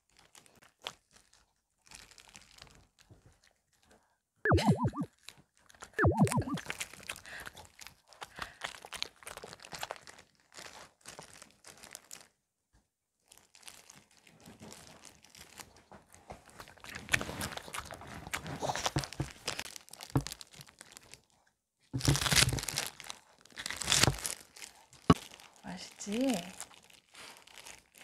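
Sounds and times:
plastic glove crinkling: 0.0s - 3.0s, 9.4s - 12.4s, 13.3s - 15.7s, 19.1s - 21.4s, 22.0s - 28.0s
short vocal sound: 4.5s - 5.1s, 6.0s - 6.6s.

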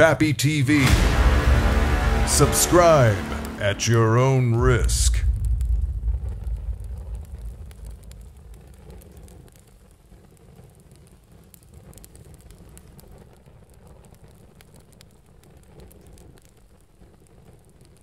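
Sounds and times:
low rumble: 0.7s - 10.2s
faint crackling clicks: 6.4s - 18.0s.

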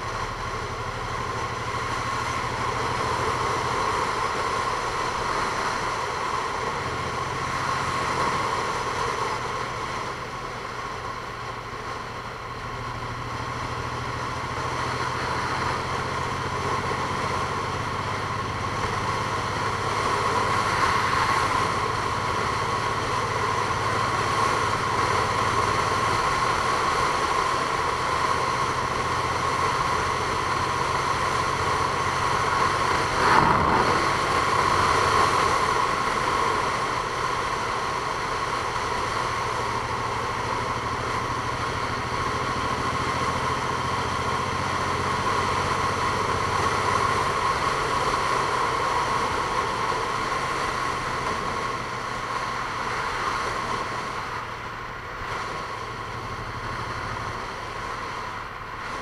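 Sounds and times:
engine whine: 0.0s - 59.0s
vehicle engine running: 0.0s - 59.0s
whoosh: 33.0s - 35.6s.

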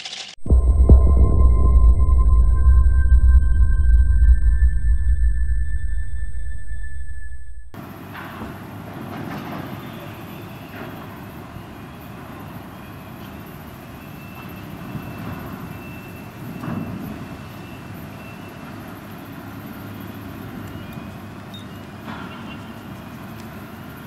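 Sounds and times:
thin high whine: 0.0s - 7.8s
distant machinery rumble: 0.4s - 7.8s.

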